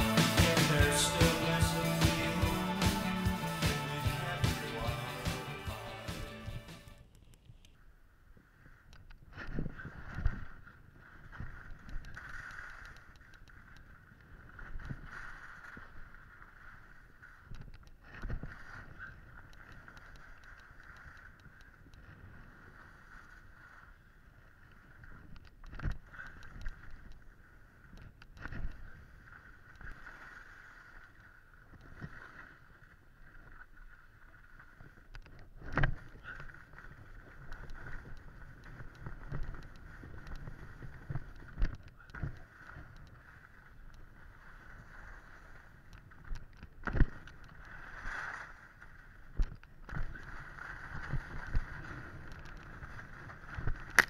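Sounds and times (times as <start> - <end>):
skis scraping over snow: 9.4 - 17.5, 18.2 - 25.3, 28.5 - 35.1, 35.9 - 41.7, 42.4 - 54.0.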